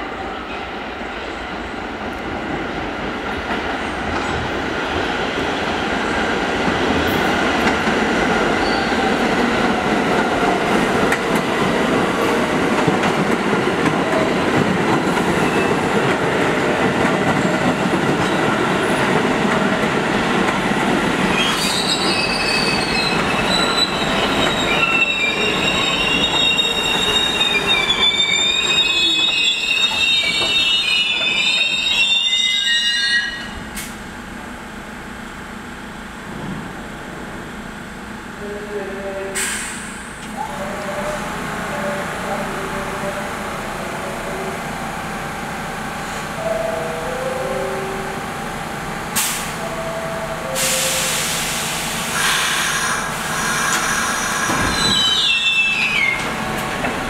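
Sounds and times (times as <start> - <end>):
train wheels rumbling on rails: 0.6 - 32.0, 33.5 - 57.0
high-pitched wheel squeal: 21.4 - 33.6, 52.5 - 56.3.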